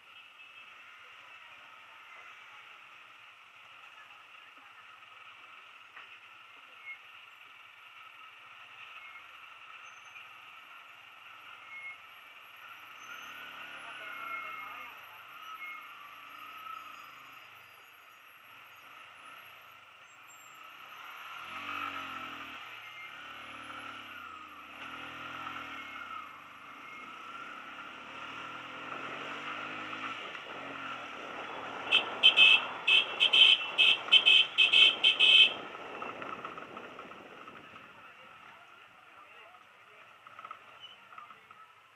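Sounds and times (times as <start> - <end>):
short horn beeps: 31.9 - 35.6
motorcycle engine running softly: 33.6 - 41.9.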